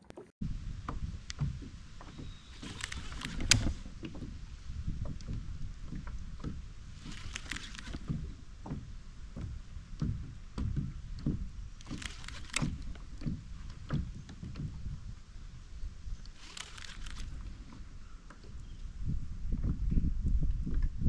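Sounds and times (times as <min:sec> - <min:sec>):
water slapping against kayak hull: 0:00.0 - 0:19.9
sharp clicks: 0:02.6 - 0:03.8, 0:07.0 - 0:08.1, 0:11.8 - 0:13.3, 0:16.2 - 0:17.5.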